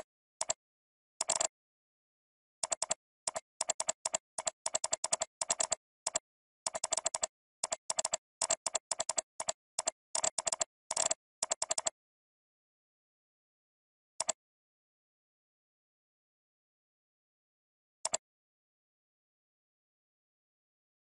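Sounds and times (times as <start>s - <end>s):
computer keyboard typing: 2.6s - 12.0s.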